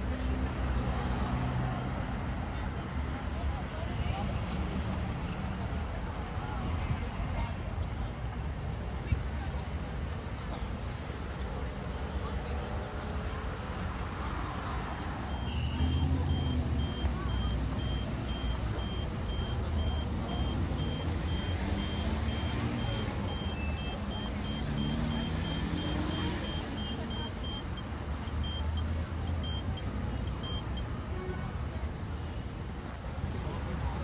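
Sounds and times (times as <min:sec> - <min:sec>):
low rumble of cars: 0:00.0 - 0:34.0
crossing signal high beeps: 0:15.2 - 0:30.9.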